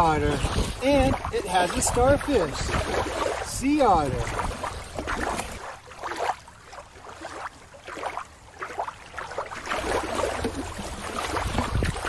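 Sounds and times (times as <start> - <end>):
water splashing: 0.0 - 12.0.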